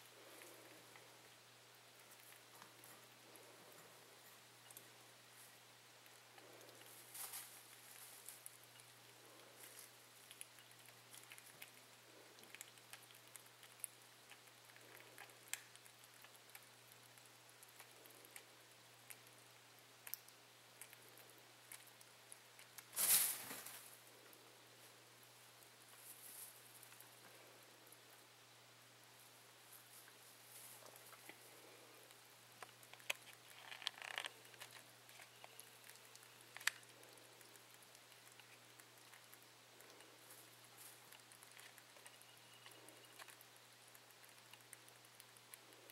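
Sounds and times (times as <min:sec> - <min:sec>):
steady low hum: 0:00.0 - 0:45.9
rabbits lapping wet clicks: 0:10.0 - 0:22.9, 0:30.9 - 0:45.9
rustle on hay: 0:22.9 - 0:23.9.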